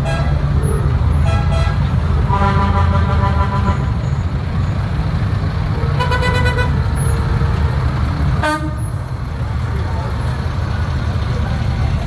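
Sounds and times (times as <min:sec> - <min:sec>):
heavy vehicle engine rumbling: 0:00.0 - 0:12.0
vehicle horn: 0:01.2 - 0:04.0, 0:06.0 - 0:06.8, 0:08.4 - 0:08.9.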